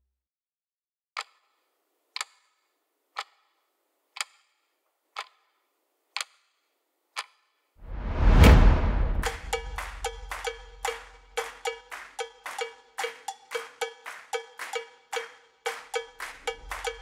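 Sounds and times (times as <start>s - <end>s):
clock ticking: 5.1s - 6.4s, 9.4s - 15.3s, 15.9s - 17.0s.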